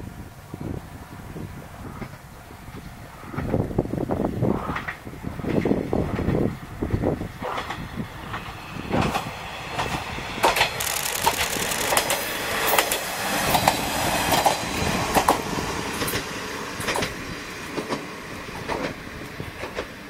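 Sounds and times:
train wheels clacking over rail joints: 4.5s - 20.0s.

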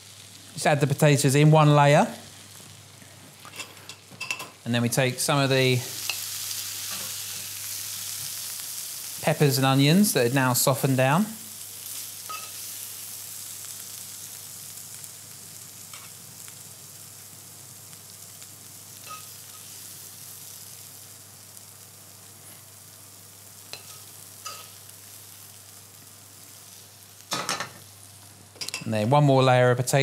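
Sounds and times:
vegetables sizzling in frying pan: 0.0s - 29.6s
metal spoon clinking on pan: 3.6s - 4.6s, 12.3s - 12.6s, 19.0s - 19.3s, 23.7s - 24.7s.

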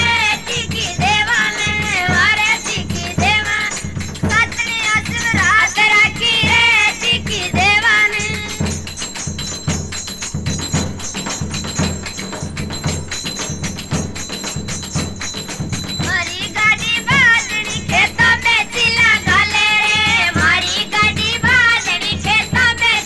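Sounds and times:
folk singing: 0.0s - 8.8s, 16.0s - 23.0s
drum strokes: 0.0s - 23.0s
jingling percussion: 0.0s - 23.0s.

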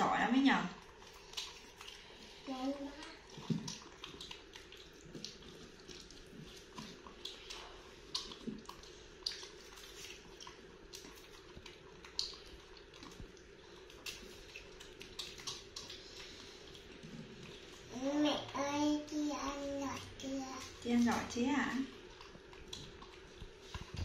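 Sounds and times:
wet clicks of fruit being eaten: 0.8s - 2.2s, 2.8s - 17.9s, 21.9s - 24.0s.

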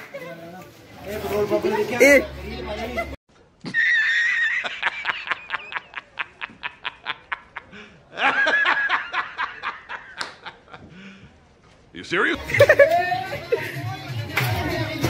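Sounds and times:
man laughing: 2.9s - 10.9s, 12.4s - 14.0s.

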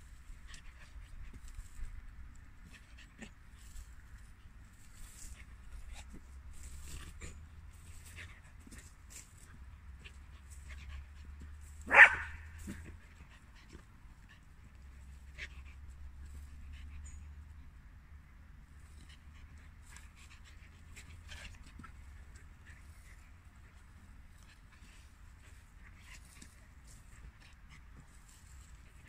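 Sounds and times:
dog barking: 11.9s - 12.5s.

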